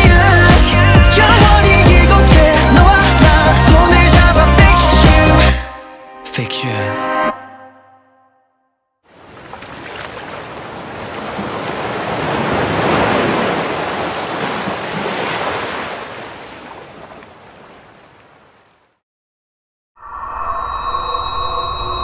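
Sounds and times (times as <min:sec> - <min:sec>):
ocean waves: 0:09.1 - 0:19.0.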